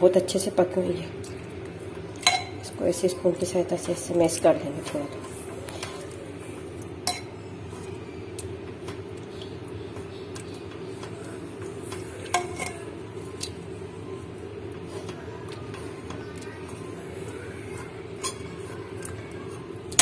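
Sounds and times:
steady low hum: 0:00.0 - 0:20.0
metal spoon clinking on pot: 0:02.2 - 0:02.6, 0:07.0 - 0:07.3, 0:12.2 - 0:12.8, 0:18.2 - 0:18.6.

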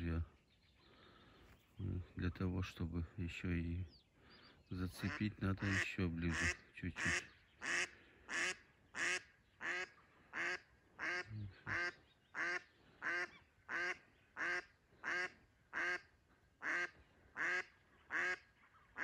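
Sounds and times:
duck quacking: 0:05.0 - 0:19.0.

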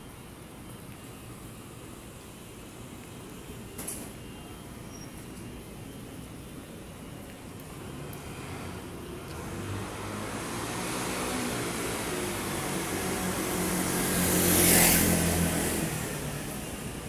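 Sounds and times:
motor scooter passing by: 0:08.0 - 0:17.0.

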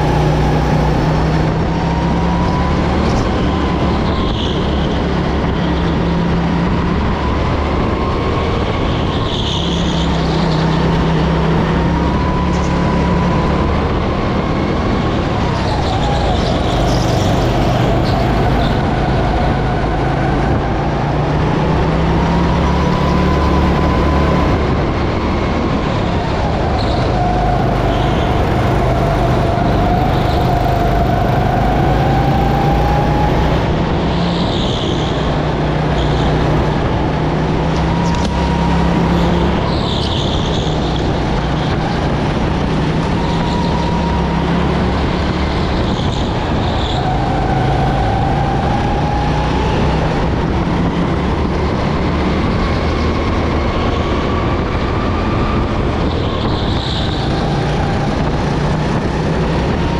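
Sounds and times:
go-kart engine revving: 0:00.0 - 0:59.9.

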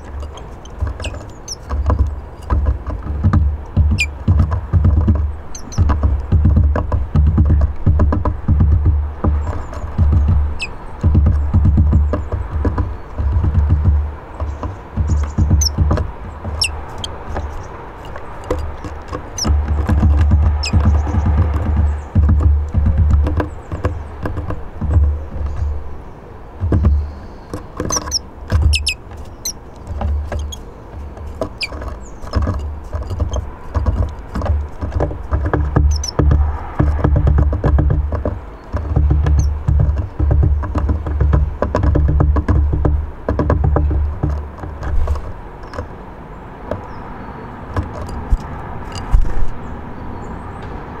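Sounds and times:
birds pecking on wooden table: 0:00.0 - 0:49.6
short knocks and clicks: 0:00.0 - 0:49.6
small birds chirping: 0:00.0 - 0:51.0
faint high bird chirps: 0:10.5 - 0:10.9, 0:26.9 - 0:29.6.

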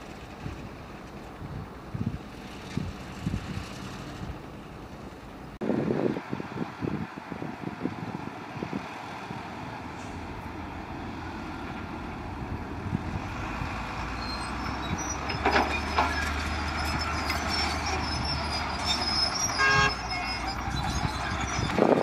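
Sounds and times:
diesel engine rumbling: 0:00.0 - 0:22.0
high squeals: 0:13.8 - 0:22.0
horn-like tone: 0:19.6 - 0:20.5.

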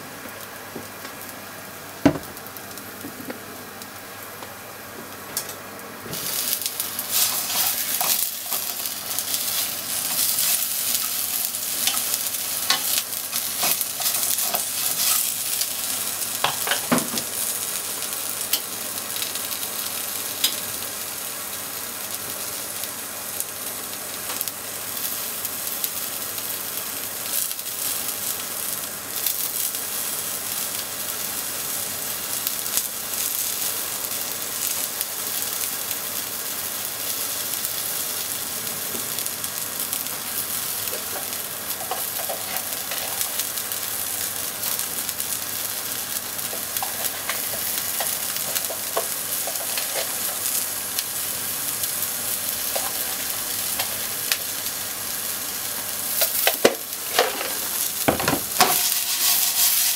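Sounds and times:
food sizzling in oil: 0:00.0 - 0:59.9.

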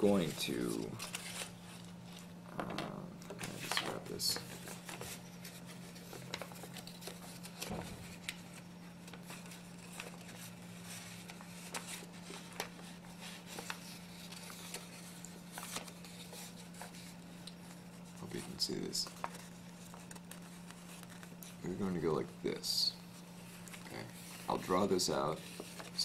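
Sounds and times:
steady low hum: 0:00.0 - 0:26.0
paper crinkling and tapping: 0:00.1 - 0:22.0, 0:23.5 - 0:26.0.

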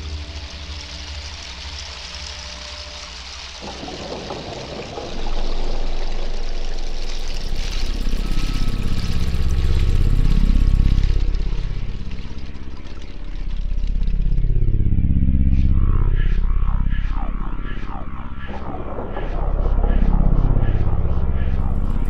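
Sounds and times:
hissy noise layer: 0:00.0 - 0:12.8
deep synthesizer drone: 0:00.0 - 0:22.0.

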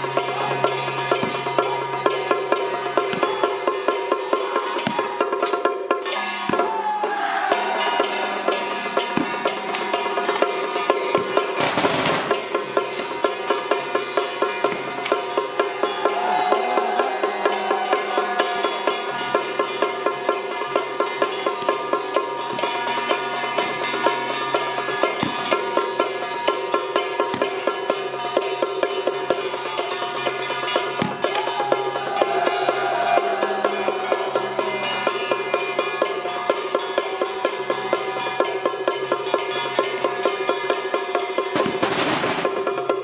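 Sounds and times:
sustained melodic instruments: 0:00.0 - 0:42.0
cymbal crash: 0:07.5 - 0:15.4, 0:41.6 - 0:42.8.

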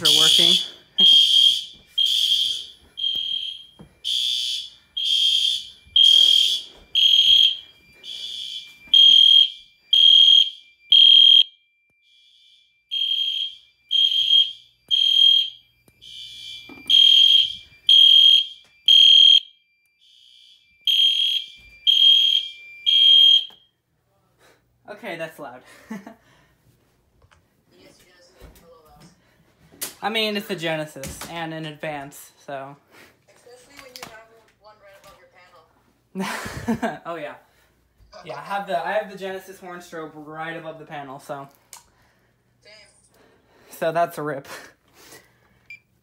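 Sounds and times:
pulsing fire alarm horn: 0:00.0 - 0:23.7
faint steady alarm tone: 0:00.0 - 0:23.9.

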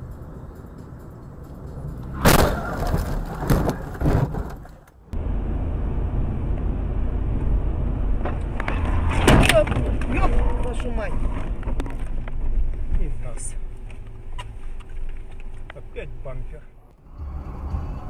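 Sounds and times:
in-car road and engine noise: 0:00.0 - 0:18.0
car crash: 0:02.1 - 0:04.9.

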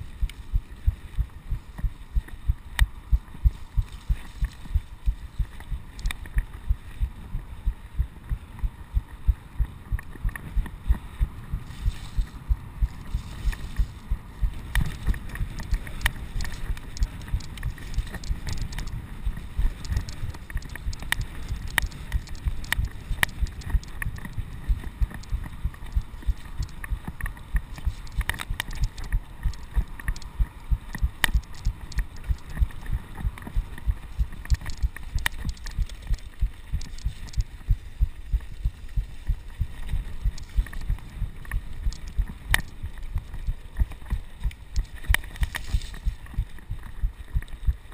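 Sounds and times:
sharp clicks and rattles: 0:11.9 - 0:47.9.

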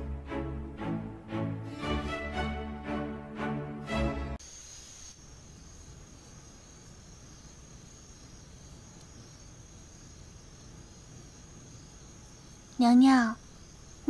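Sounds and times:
crickets chirring: 0:04.4 - 0:14.0.

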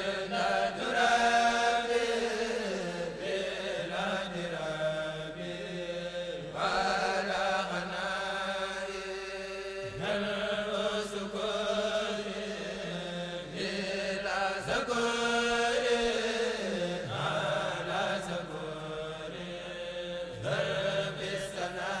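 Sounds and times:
voices chanting long notes: 0:00.0 - 0:22.0.

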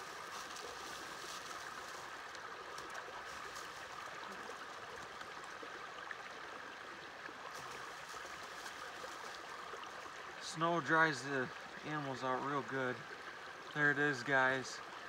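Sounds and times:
snow crunching and rustling: 0:00.0 - 0:02.1
creek flowing: 0:00.0 - 0:15.0.

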